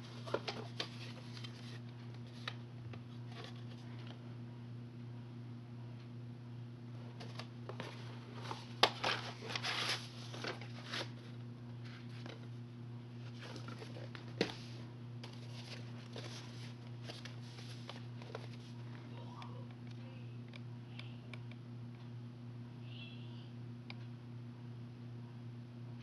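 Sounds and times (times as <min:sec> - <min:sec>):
rustling and scraping: 0:00.0 - 0:04.1, 0:07.2 - 0:12.5, 0:13.2 - 0:18.8
low electrical hum: 0:00.0 - 0:26.0.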